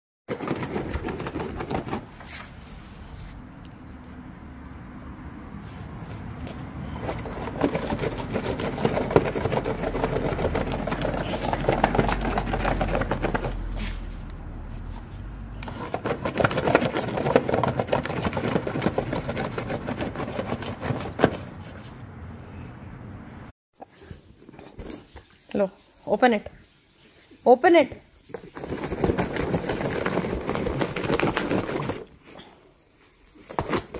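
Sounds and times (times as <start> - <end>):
dog claws scratching cardboard: 0.3 - 2.8, 6.0 - 22.0, 28.2 - 32.2, 33.3 - 33.9.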